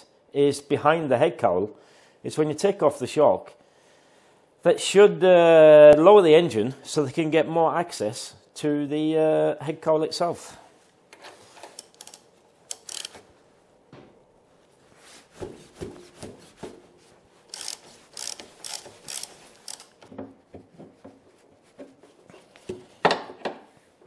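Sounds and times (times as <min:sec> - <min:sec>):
ratchet wrench clicking: 0:11.8 - 0:13.2, 0:17.5 - 0:20.0.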